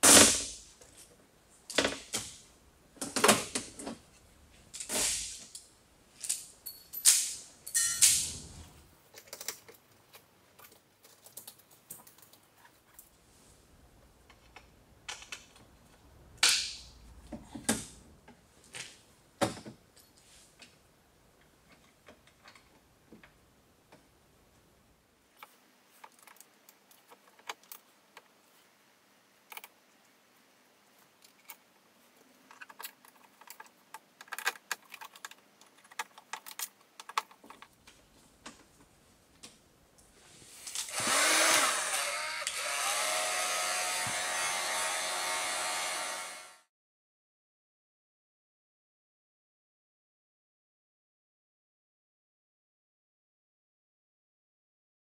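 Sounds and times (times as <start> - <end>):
heat gun blowing: 40.8 - 46.6.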